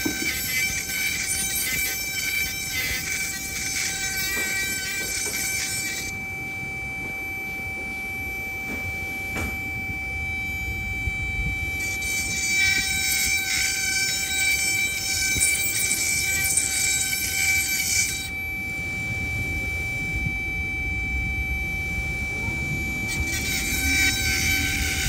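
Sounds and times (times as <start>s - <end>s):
bit grinding screech on stone: 0.0s - 6.3s, 11.6s - 19.1s, 22.7s - 25.0s
rotary tool whining: 0.0s - 25.0s.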